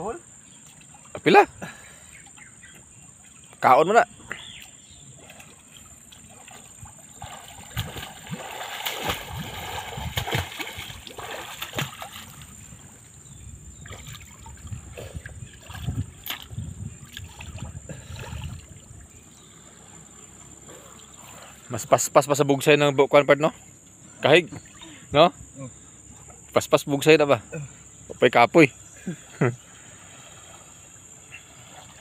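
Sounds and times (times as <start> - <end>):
water splashing from swimming: 4.3 - 12.9, 13.8 - 19.9, 29.3 - 32.0.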